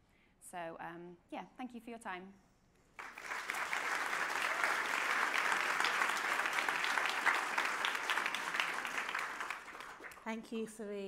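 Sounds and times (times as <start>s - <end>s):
audience applauding: 3.0s - 10.3s.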